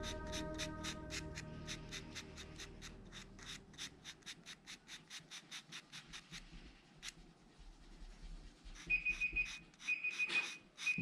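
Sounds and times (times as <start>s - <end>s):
pencil scratching on paper: 0.0s - 11.0s.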